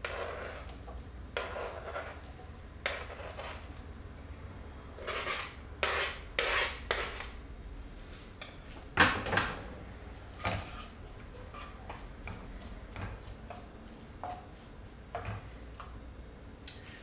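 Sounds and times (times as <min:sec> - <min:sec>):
onion scraped off cutting board: 0:00.0 - 0:00.7, 0:01.4 - 0:02.3, 0:02.9 - 0:03.7, 0:05.0 - 0:07.4.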